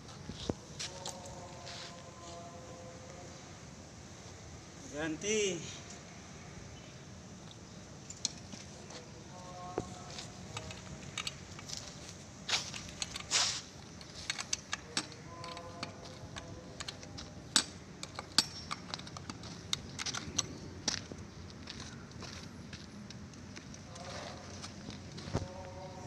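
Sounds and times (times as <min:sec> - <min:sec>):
small metallic clicks and clinks: 0:10.5 - 0:11.9, 0:12.6 - 0:20.7
short scraping sounds: 0:13.2 - 0:13.7.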